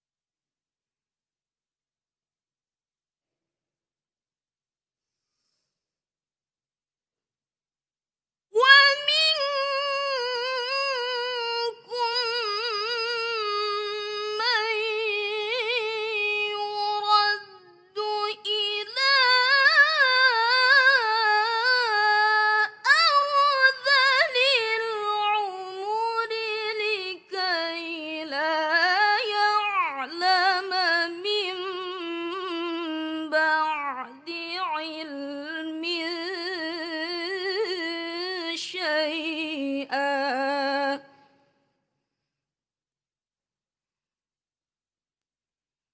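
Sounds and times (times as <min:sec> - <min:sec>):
breath: 0:05.0 - 0:06.0
woman reciting melodically: 0:08.6 - 0:41.1.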